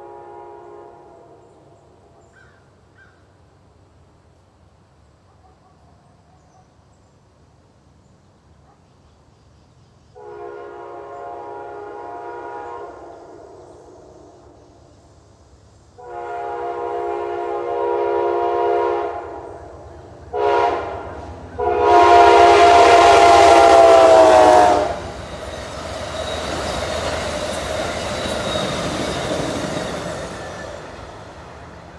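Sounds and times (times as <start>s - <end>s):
locomotive horn blasts: 0.0s - 1.7s, 10.2s - 14.0s, 16.0s - 25.2s
train wheels rumbling on rail: 9.2s - 31.9s.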